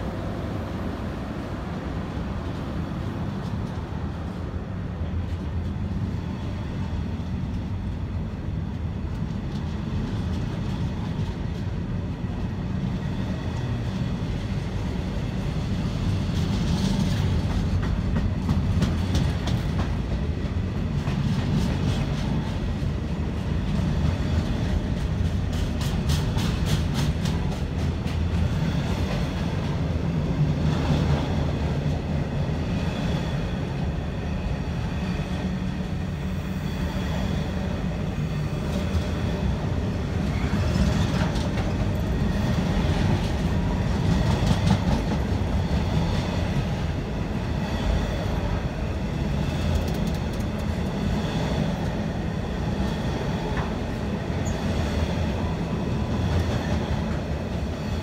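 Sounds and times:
train wheels rumbling on rail: 0.0s - 58.0s
wheels clicking over rail joints: 16.0s - 29.9s, 40.2s - 47.0s, 49.3s - 51.1s.

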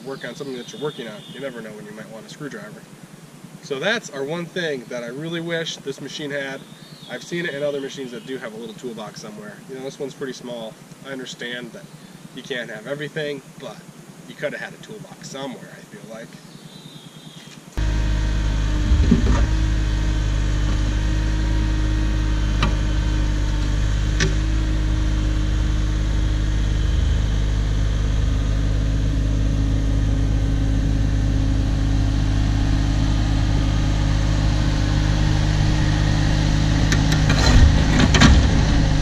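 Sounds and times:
diesel engine running: 16.4s - 39.0s.

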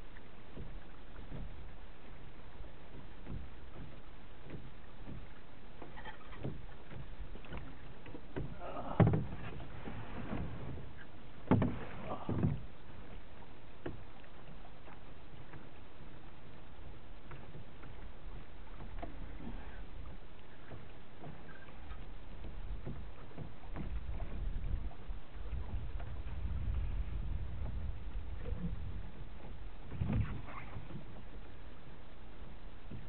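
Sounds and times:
water rushing past boat: 0.0s - 33.0s
wind: 0.0s - 33.0s
knocks on boat: 2.9s - 12.7s, 20.6s - 26.9s, 27.6s - 31.3s.

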